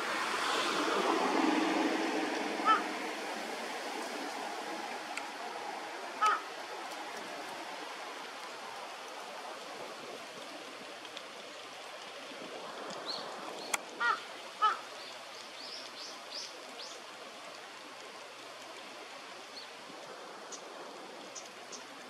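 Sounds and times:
steady background hiss: 0.0 - 22.0
crow giving harsh calls: 2.6 - 3.0, 6.2 - 6.5, 14.0 - 14.9.

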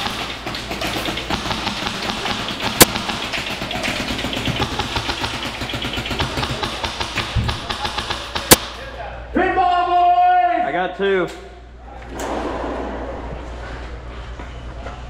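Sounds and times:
airsoft rifles firing bursts: 0.0 - 8.8.

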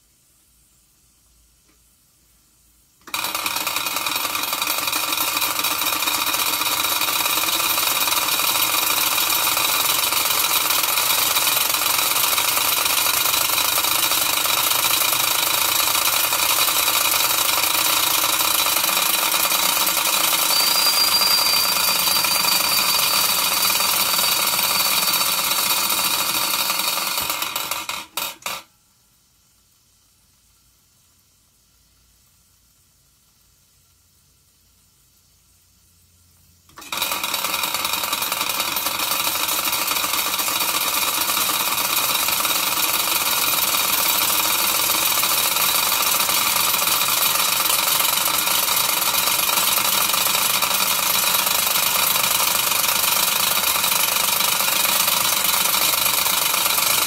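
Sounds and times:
high steam whistle: 20.3 - 25.2.

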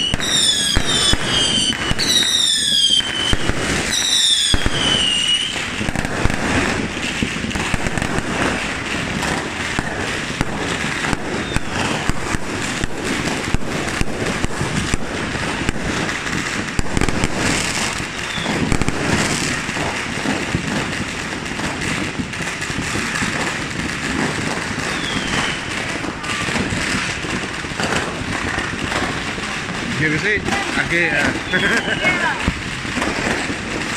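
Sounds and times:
falling firework whistles: 0.0 - 9.4, 10.8 - 12.5, 13.2 - 20.6, 24.2 - 27.4, 30.8 - 33.9
fireworks bangs and crackling: 0.0 - 33.9.

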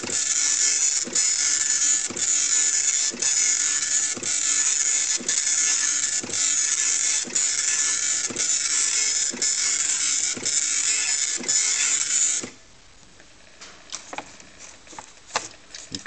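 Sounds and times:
dot-matrix printer head buzzing: 0.0 - 12.6.

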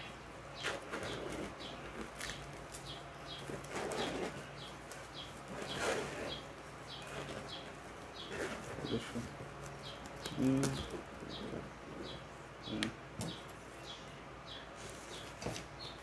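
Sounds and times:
small bird chirping: 0.0 - 16.0.

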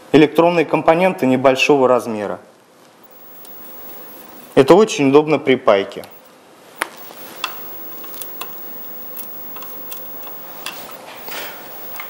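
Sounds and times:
soft hiss: 2.8 - 5.2, 6.0 - 12.0
brush and soldering iron clicks: 6.8 - 12.0.

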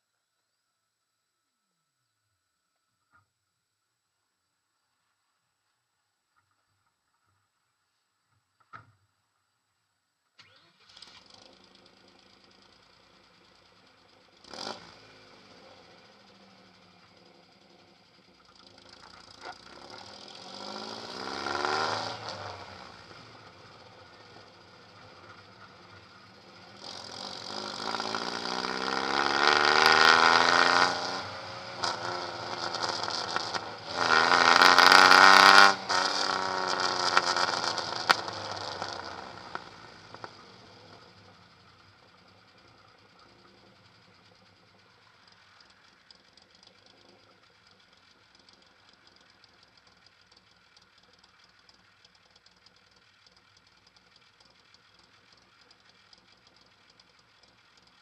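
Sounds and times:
engine revving loudly: 14.4 - 15.7, 19.7 - 23.1, 26.7 - 40.2.

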